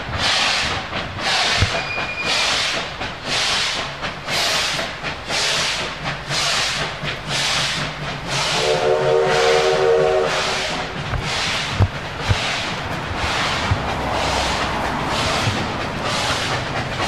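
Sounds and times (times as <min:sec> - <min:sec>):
steam locomotive chuffing: 0:00.0 - 0:17.0
steam whistle blowing: 0:08.3 - 0:11.6.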